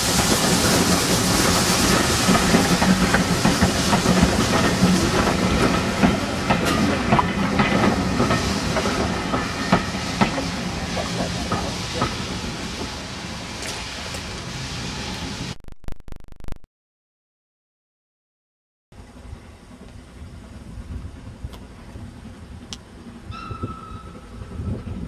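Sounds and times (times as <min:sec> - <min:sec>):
train wheels clicking on rail joints: 0:00.0 - 0:15.3
steam hissing: 0:00.0 - 0:15.5.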